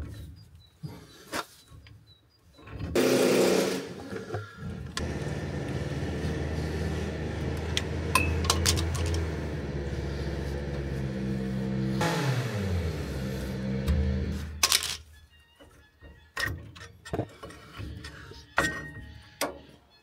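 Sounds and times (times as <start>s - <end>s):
motor humming: 4.6s - 14.6s.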